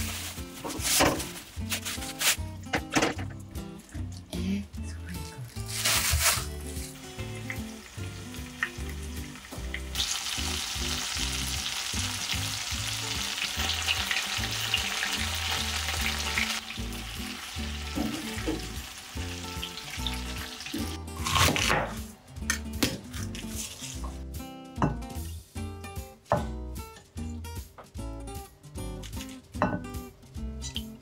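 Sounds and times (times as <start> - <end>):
knife cutting cabbage: 0.0 - 2.4, 5.3 - 7.1, 20.7 - 22.0, 22.8 - 24.2
chicken sizzling in frying pan: 5.7 - 21.6.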